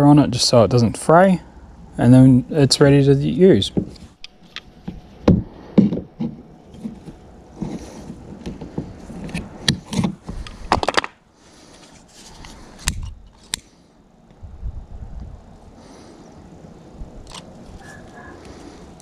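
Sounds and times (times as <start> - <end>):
rope scraping and rustling: 3.7 - 10.8, 11.5 - 13.6.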